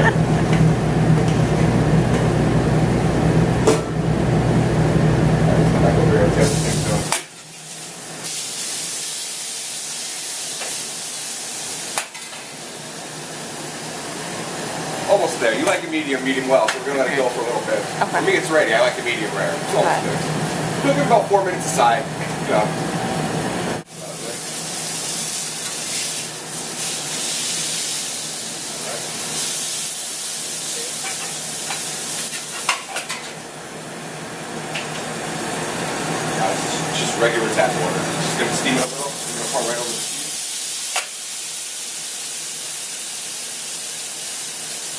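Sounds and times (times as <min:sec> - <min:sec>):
patty sizzling on a griddle: 0:06.4 - 0:19.3, 0:23.9 - 0:44.9.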